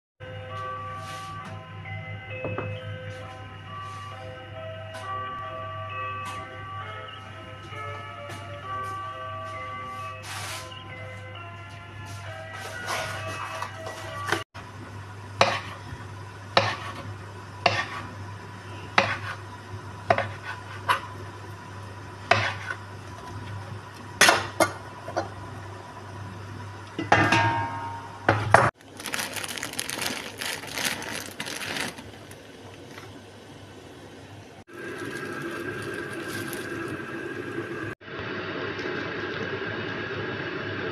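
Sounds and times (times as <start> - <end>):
pot boiling with hiss: 12.6 - 40.9.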